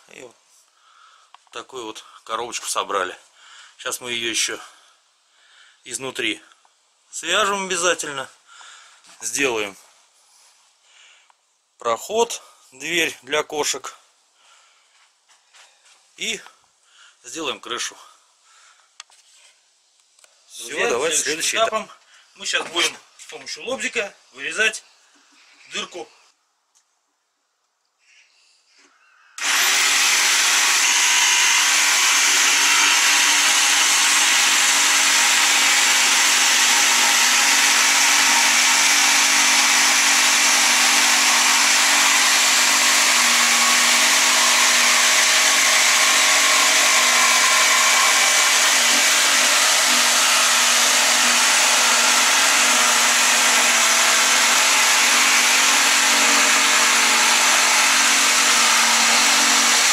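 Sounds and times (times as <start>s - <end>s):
electric jigsaw cutting wood: 29.4s - 59.9s.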